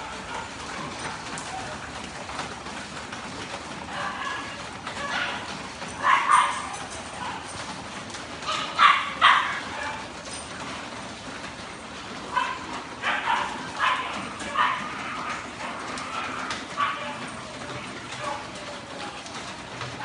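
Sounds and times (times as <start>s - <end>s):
dogs barking: 0.0s - 2.3s, 3.6s - 10.5s, 12.0s - 18.7s.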